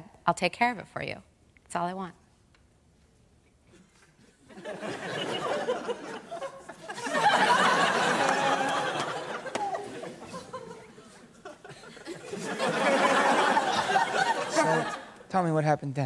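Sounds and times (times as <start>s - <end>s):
audience laughing: 4.5s - 15.2s.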